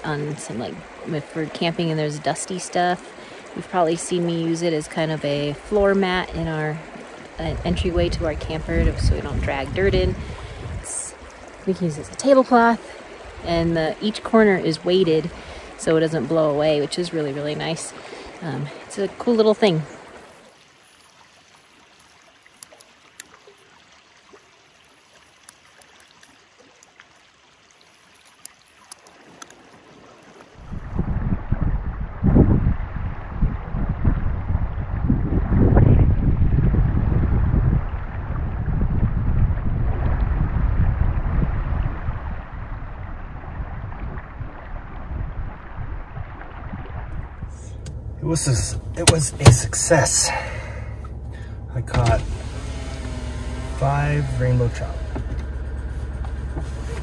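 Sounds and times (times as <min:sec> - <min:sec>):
river flowing: 0:00.0 - 0:30.9, 0:45.5 - 0:57.0
wind buffeting microphone: 0:04.8 - 0:12.2, 0:30.5 - 0:50.3.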